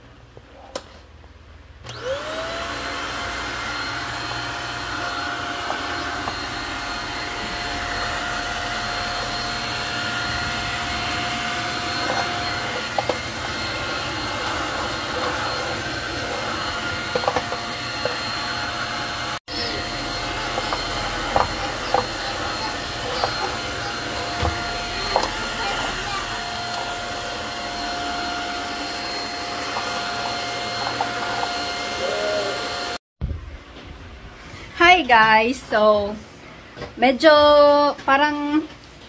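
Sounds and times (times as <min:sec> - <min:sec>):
stick vacuum cleaner running: 0:01.8 - 0:33.0.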